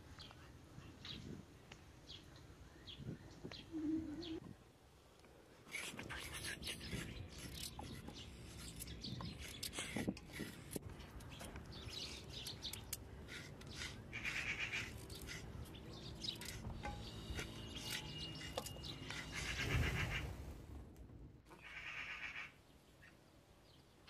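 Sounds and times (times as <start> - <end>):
birds chirping: 0.1 - 4.7, 5.7 - 20.5
knives scraping carrots: 5.7 - 19.6.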